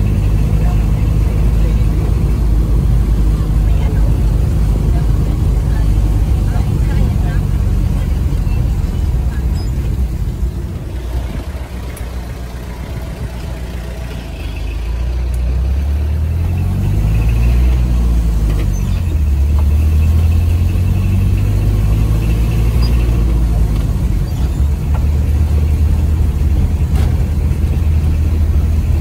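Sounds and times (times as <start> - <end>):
road noise inside car: 0.0 - 29.0
vehicle engine: 0.0 - 29.0.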